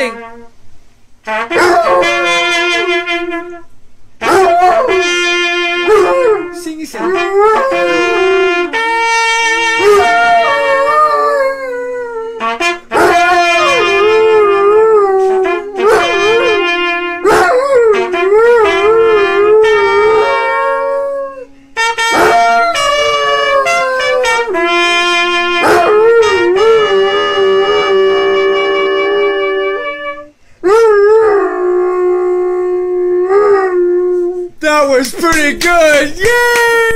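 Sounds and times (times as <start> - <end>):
trumpet holding notes: 0.0 - 0.6, 1.2 - 32.6
dog howling: 1.5 - 3.5, 4.2 - 8.8, 9.8 - 21.5, 22.1 - 24.5, 25.5 - 34.3.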